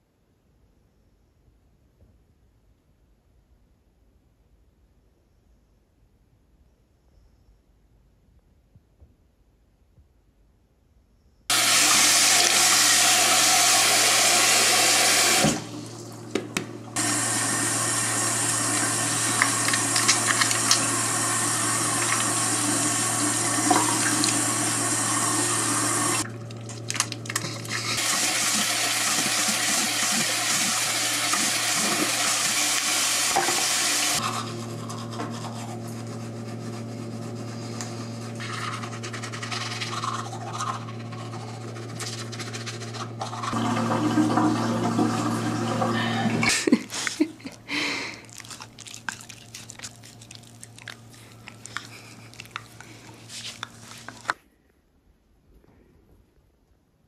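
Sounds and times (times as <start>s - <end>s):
tap running water: 11.5s - 34.5s, 43.2s - 47.3s
steady low hum: 34.2s - 54.3s.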